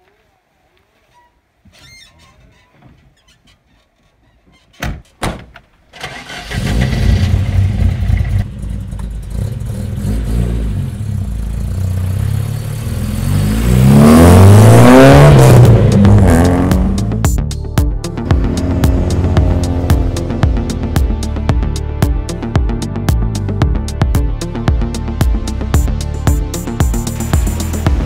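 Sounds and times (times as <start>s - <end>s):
car engine starting and running: 5.9s - 28.0s
car engine revving: 6.1s - 17.3s, 18.0s - 22.5s, 24.5s - 28.0s.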